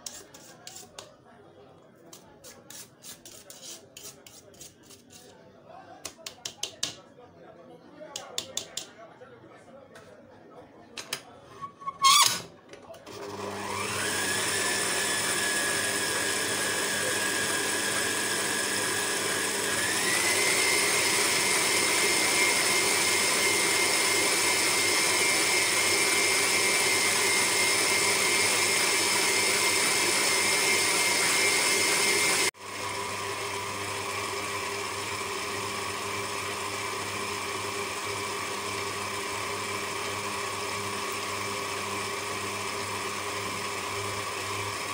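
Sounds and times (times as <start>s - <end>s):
stand mixer motor whining: 13.0s - 44.9s.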